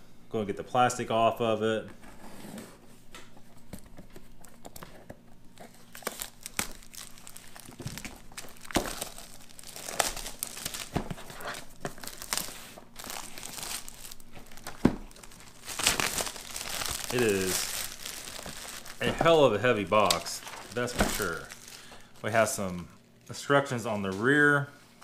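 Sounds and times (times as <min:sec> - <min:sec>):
plastic shrink-wrap crinkling and tearing: 0:05.5 - 0:23.4.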